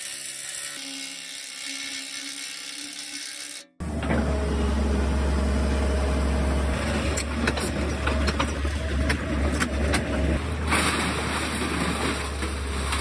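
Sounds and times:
diesel engine droning: 0:03.8 - 0:13.0.

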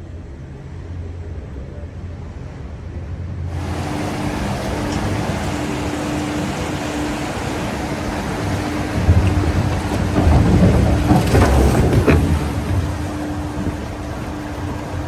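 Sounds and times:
water rushing down flume: 0:03.4 - 0:15.0
log boat splashing into water: 0:03.5 - 0:15.0.

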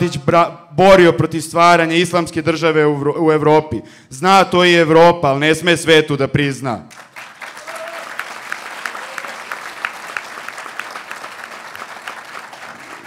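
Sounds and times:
audience applauding: 0:06.9 - 0:13.0.

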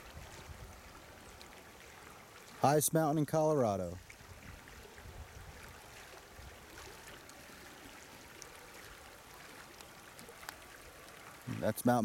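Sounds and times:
stream flowing: 0:00.0 - 0:12.0
faint ticks: 0:06.8 - 0:07.4, 0:08.3 - 0:11.4.

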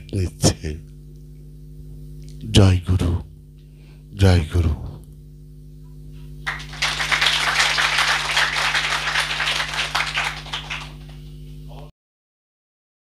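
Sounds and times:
low electrical hum: 0:00.0 - 0:11.9
applause: 0:06.4 - 0:11.2.

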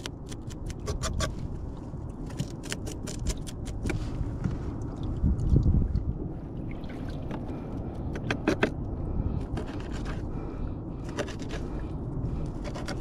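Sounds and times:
low rumble: 0:03.8 - 0:13.0.

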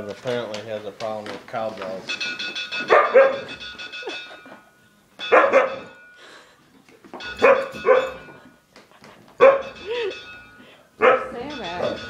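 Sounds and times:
cowbell ringing from a phone: 0:01.6 - 0:08.6, 0:09.4 - 0:12.0
husky barking and yowling: 0:02.8 - 0:03.6, 0:05.2 - 0:06.0, 0:07.4 - 0:08.3, 0:09.4 - 0:10.0, 0:11.0 - 0:11.4.

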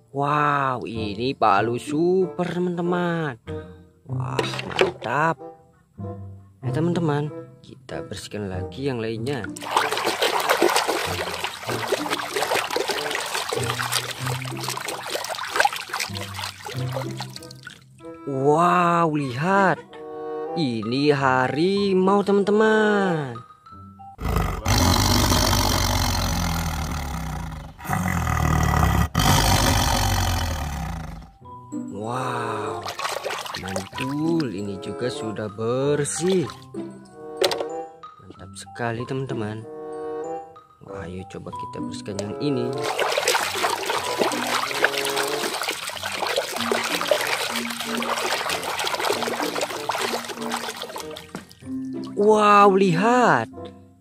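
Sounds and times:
water splashing in a tub: 0:09.5 - 0:17.9, 0:32.5 - 0:34.6, 0:36.2 - 0:36.7, 0:42.6 - 0:52.2
tiger snarling and growling: 0:24.2 - 0:31.4.

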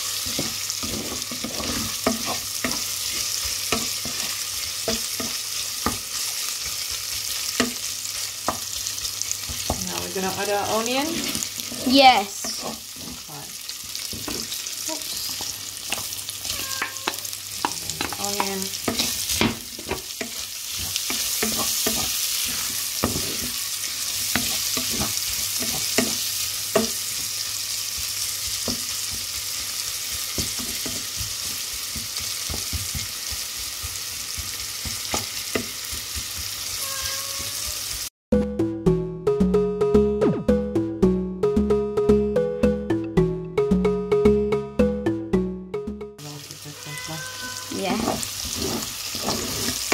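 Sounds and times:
bacon and onion sizzling: 0:00.0 - 0:38.1, 0:46.2 - 0:49.9
utensil scraping a pan: 0:00.2 - 0:06.3, 0:09.5 - 0:13.4, 0:14.1 - 0:27.0, 0:46.9 - 0:49.9.

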